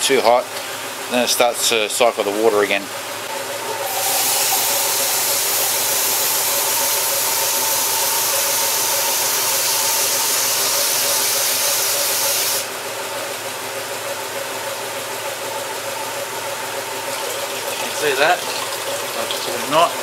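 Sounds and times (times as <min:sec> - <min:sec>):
engine idling: 0:00.4 - 0:18.3
water hissing from hose: 0:03.7 - 0:12.7.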